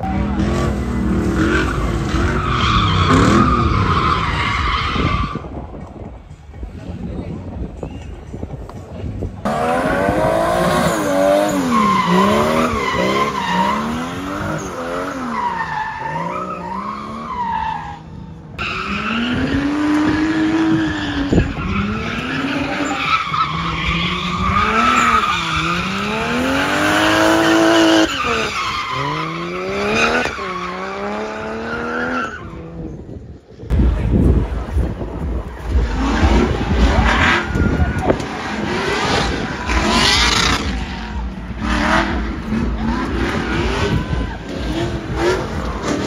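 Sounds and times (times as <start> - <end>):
car engine revving: 9.4 - 17.7, 18.5 - 32.2, 33.7 - 46.0
tyres screeching: 9.5 - 32.6.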